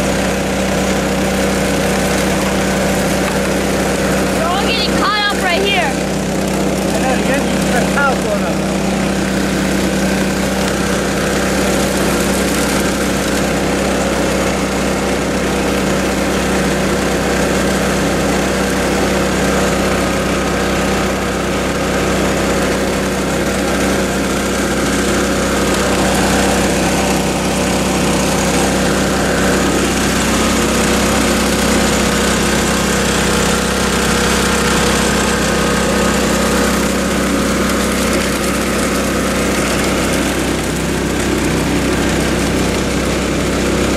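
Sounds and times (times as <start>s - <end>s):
small water pump engine running: 0.0s - 43.9s
water rushing over riffles: 0.0s - 43.9s.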